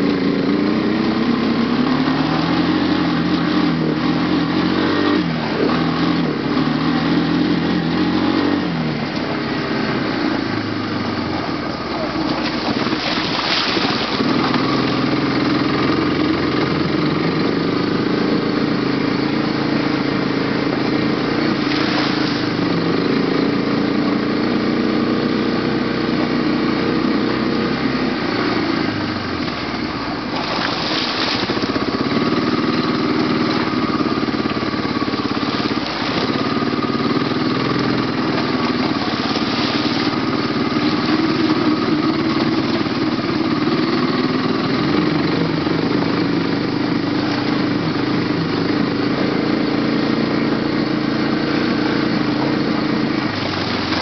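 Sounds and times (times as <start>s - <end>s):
quad engine running: 0.0s - 54.0s
short noisy rushes: 11.8s - 15.2s, 21.4s - 22.8s, 30.2s - 31.9s.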